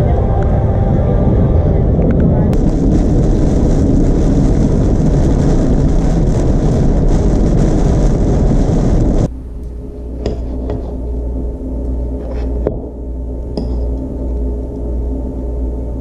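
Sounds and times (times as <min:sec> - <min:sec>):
car driving in heavy rain: 0:00.6 - 0:09.3.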